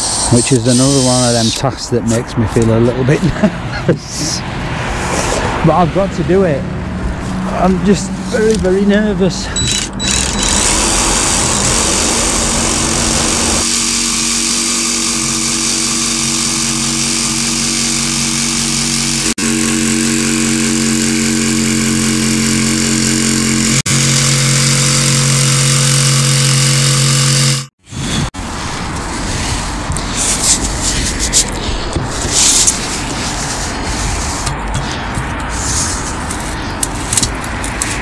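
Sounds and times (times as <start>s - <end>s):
jigsaw cutting buzz: 9.7s - 27.7s.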